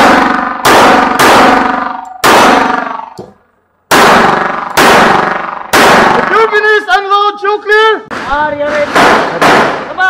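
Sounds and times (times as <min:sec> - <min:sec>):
pistol shots ringing: 0:00.0 - 0:06.6, 0:08.9 - 0:09.9.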